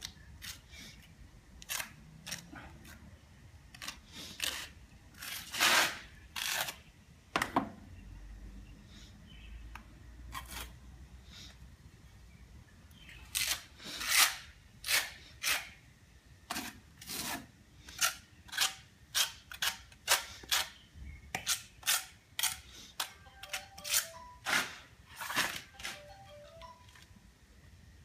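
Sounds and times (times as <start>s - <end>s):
trowel scraping mortar: 3.7s - 6.8s, 10.3s - 10.8s, 16.5s - 20.8s, 23.8s - 26.0s.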